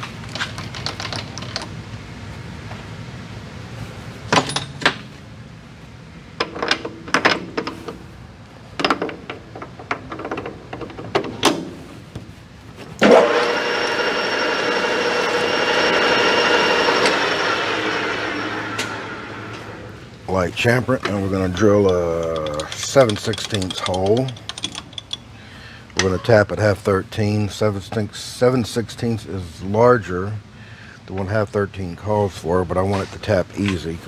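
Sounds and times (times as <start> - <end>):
lathe spindle whine: 13.0 - 20.0
clicks and knocks: 21.8 - 25.2.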